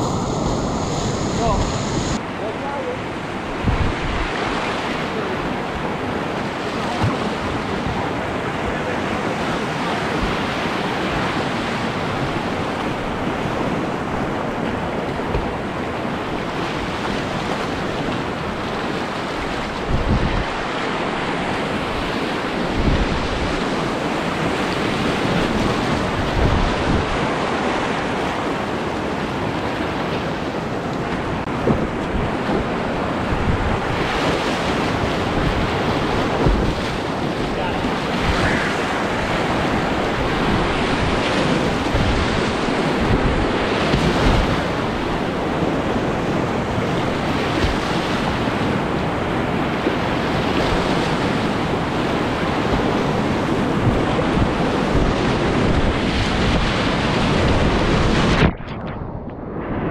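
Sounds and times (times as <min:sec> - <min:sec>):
whitewater rapids rushing: 0:00.0 - 0:58.4
low thumps on microphone: 0:36.4 - 0:36.8.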